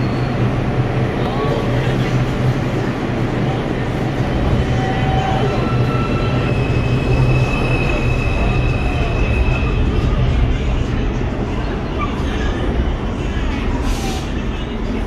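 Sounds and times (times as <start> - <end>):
high wheel squeals: 4.6 - 9.9.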